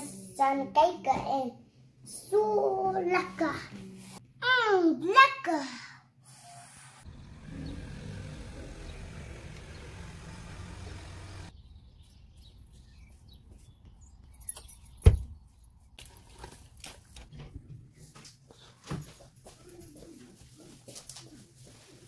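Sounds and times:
low outdoor rumble: 7.0s - 11.5s
car door shutting: 7.1s - 11.5s.

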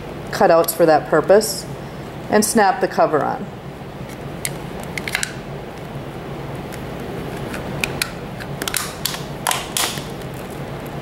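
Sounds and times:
hard plastic cover snapping shut: 7.4s - 10.3s.

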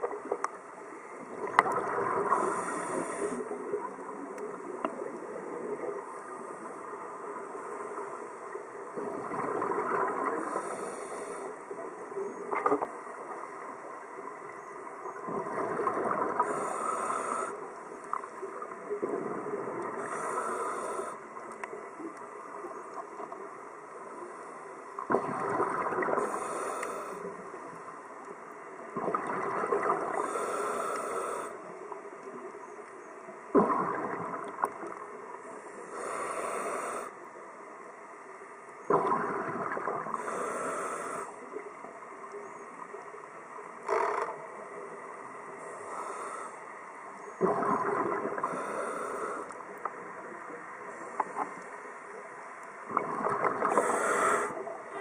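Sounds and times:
diver breathing through regulator: 2.3s - 3.5s, 10.4s - 11.6s, 16.4s - 17.6s, 20.0s - 21.2s, 26.2s - 27.3s, 30.1s - 31.6s, 35.8s - 37.2s, 40.2s - 41.4s, 45.6s - 46.6s, 48.4s - 49.6s, 53.6s - 54.6s.

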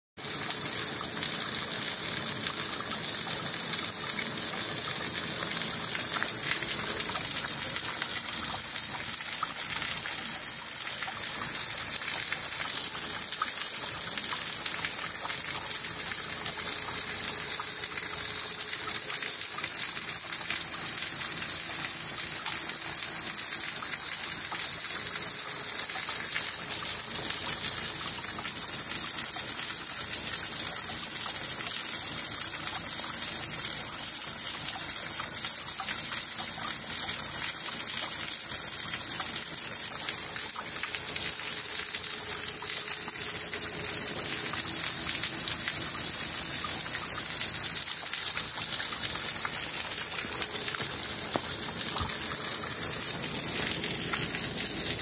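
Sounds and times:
spring water splashing on rocks: 47.1s - 55.0s.

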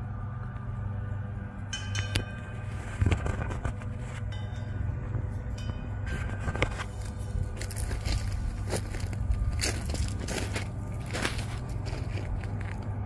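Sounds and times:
faint high ringing tones: 0.0s - 13.0s
low rumble: 0.0s - 13.0s
footsteps crunching on gravel: 6.2s - 13.0s.

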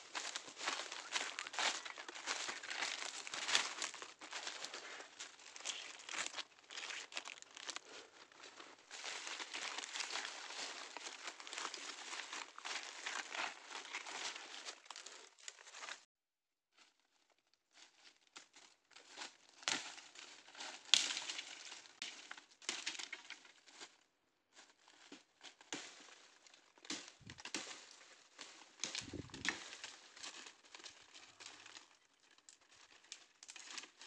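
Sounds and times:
dry leaves rustling and crackling: 0.1s - 15.2s, 27.0s - 34.0s
twigs snapping: 0.2s - 7.8s, 20.9s - 23.4s, 26.9s - 31.9s.

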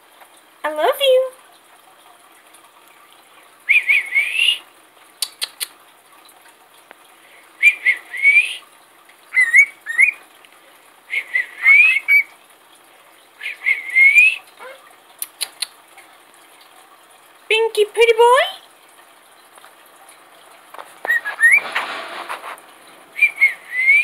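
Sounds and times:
cockatiel whistling: 9.4s - 10.2s, 21.1s - 21.7s, 23.2s - 24.0s
sharp clicks: 15.2s - 15.8s.

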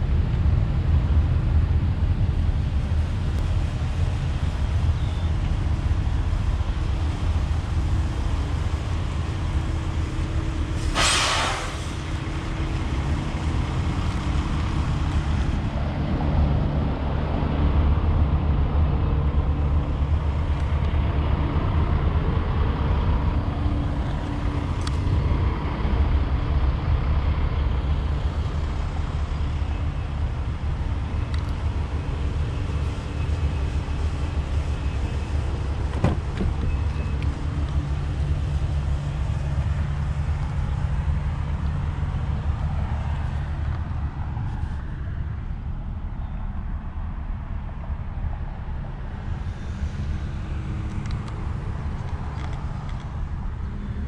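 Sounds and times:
vehicle engines rumbling: 0.0s - 54.0s
short hiss: 10.8s - 12.2s.

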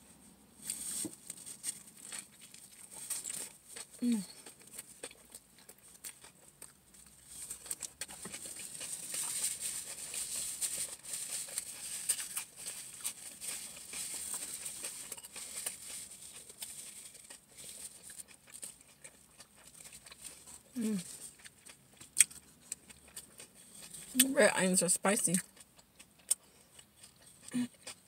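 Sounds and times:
chewing and lip smacking: 1.8s - 24.3s, 25.4s - 28.0s
paper wrapper rustling: 8.6s - 17.9s.

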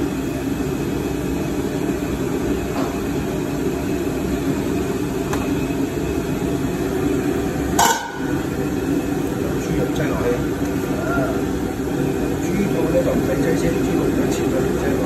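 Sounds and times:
gas burner rushing: 0.0s - 15.0s
metal pot lid clink: 7.8s - 8.3s.

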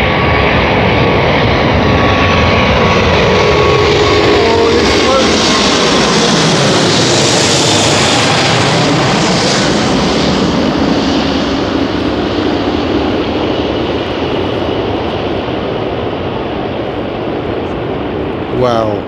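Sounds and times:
jet engines roaring overhead: 0.0s - 19.0s.

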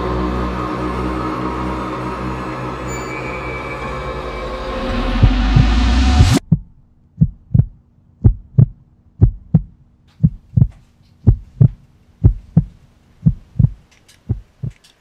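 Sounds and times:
heartbeat thumps: 5.2s - 14.8s
faint steady hum: 6.5s - 15.0s.

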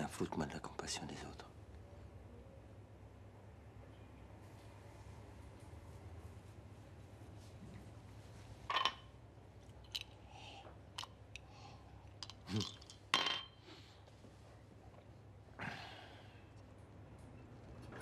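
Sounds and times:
close human breathing: 10.2s - 10.8s, 11.4s - 12.1s.

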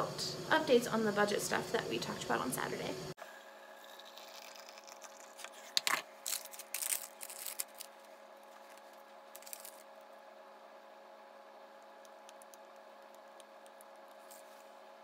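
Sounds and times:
paper packet crinkling and tearing: 3.8s - 10.0s
soft paper rustles: 14.1s - 14.8s.

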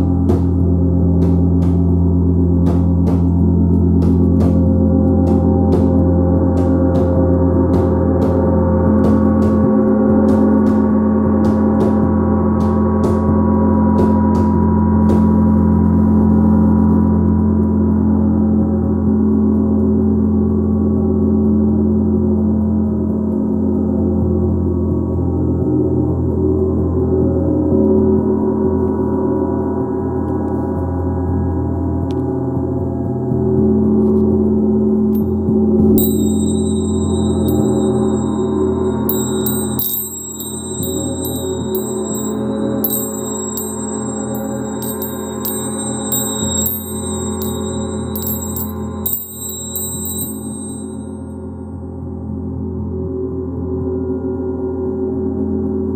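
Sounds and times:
gong struck with mallet: 35.2s - 51.4s
gong ringing tones: 35.2s - 51.6s.

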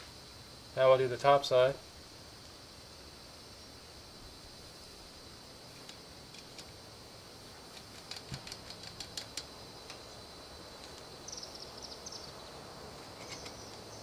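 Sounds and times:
high ticks: 7.6s - 10.1s, 13.0s - 14.0s.

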